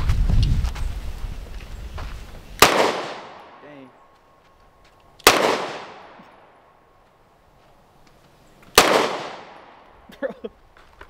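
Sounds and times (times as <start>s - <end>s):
pistol shots echoing: 2.6s - 3.9s, 5.2s - 6.7s, 8.7s - 9.9s.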